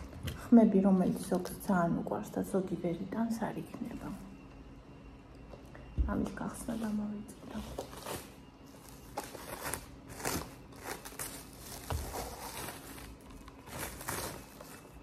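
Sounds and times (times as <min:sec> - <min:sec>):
plastic wrapping crinkling: 0:06.8 - 0:15.0.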